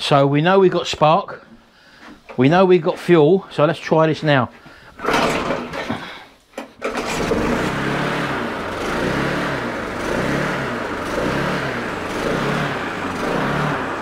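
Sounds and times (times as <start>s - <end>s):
lawnmower engine pull-started: 5.0s - 14.0s.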